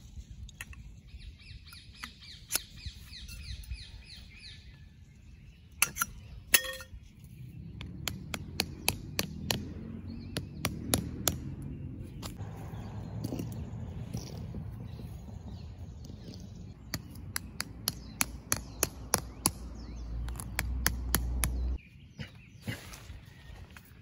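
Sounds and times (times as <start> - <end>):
metal tent poles clinking: 5.8 - 7.0.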